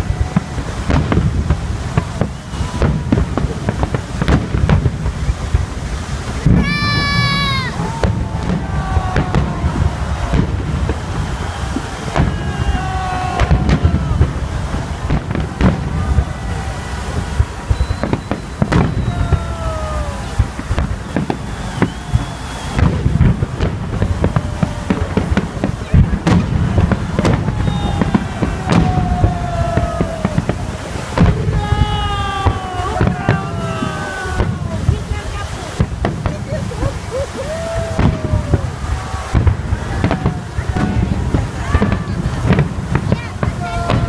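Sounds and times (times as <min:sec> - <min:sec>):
fireworks bursting with bangs: 0:00.0 - 0:44.0
fireworks whistling: 0:00.0 - 0:44.0
falling whistle tone: 0:17.6 - 0:23.2, 0:27.2 - 0:30.0
rumble of distant booms: 0:20.2 - 0:44.0.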